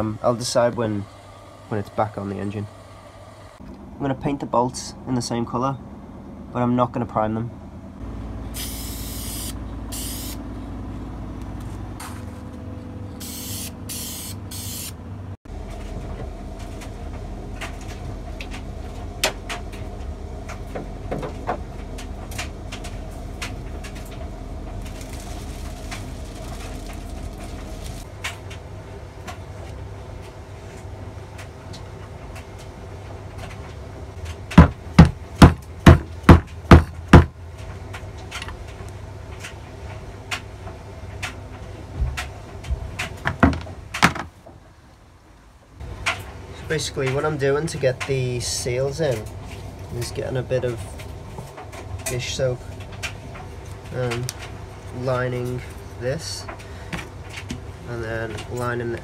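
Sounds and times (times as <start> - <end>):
spray-paint can hissing: 8.6 - 10.4, 13.2 - 14.9.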